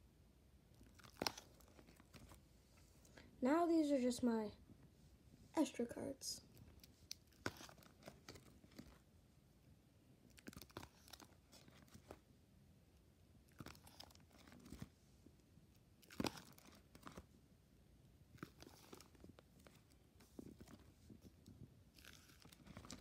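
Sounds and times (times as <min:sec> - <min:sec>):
plastic pages crinkling: 0:00.8 - 0:02.4, 0:06.6 - 0:09.0, 0:10.3 - 0:12.2, 0:13.5 - 0:14.9, 0:16.0 - 0:17.3, 0:18.3 - 0:23.0.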